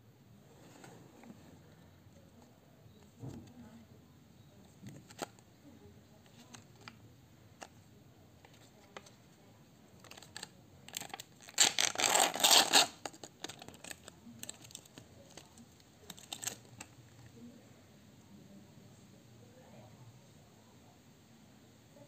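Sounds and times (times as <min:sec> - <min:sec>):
plastic lid tearing crackle: 0:10.0 - 0:14.9, 0:16.1 - 0:16.9
plastic pack clicks and rustles: 0:10.0 - 0:17.0.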